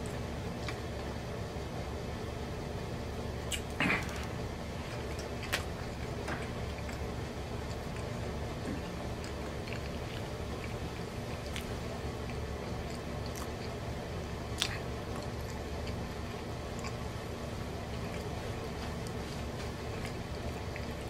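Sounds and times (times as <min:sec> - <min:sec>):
steady low hum: 0:00.0 - 0:21.0
person chewing food: 0:03.4 - 0:21.0
wet mouth clicks: 0:03.5 - 0:04.1.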